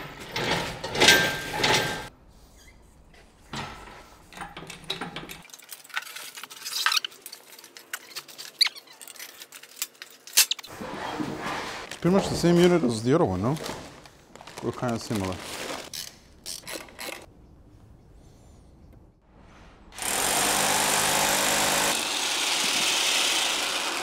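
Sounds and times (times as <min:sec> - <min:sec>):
metal clicks and knocks: 0:03.5 - 0:06.2.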